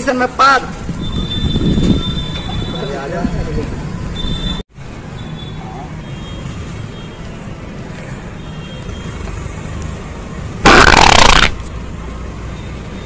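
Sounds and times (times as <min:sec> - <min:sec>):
fart sound effect: 0:10.6 - 0:11.6.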